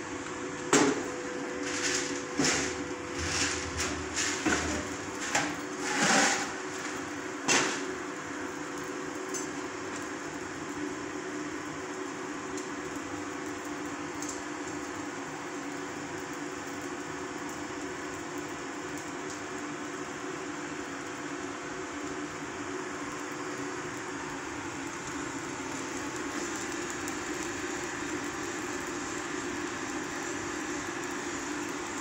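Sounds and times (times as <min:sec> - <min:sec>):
air blower humming: 0:00.6 - 0:07.9.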